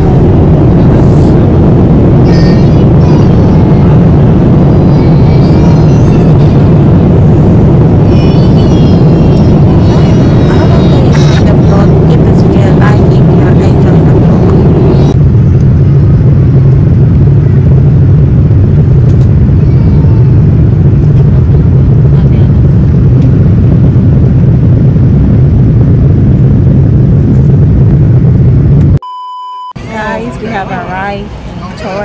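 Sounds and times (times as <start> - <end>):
airliner cabin rumble and hiss: 0.0 - 29.0, 29.8 - 32.0
high test tone beep: 29.0 - 29.8.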